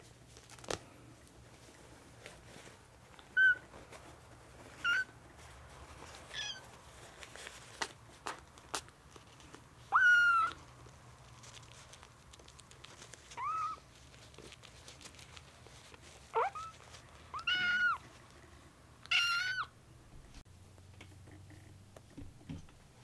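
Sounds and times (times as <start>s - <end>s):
kitten mewing: 9.9s - 10.6s, 16.4s - 18.0s.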